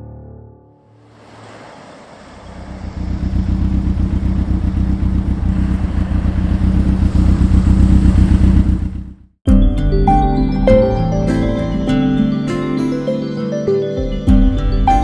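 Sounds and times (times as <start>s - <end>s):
motorcycle engine throbbing: 2.4s - 12.0s.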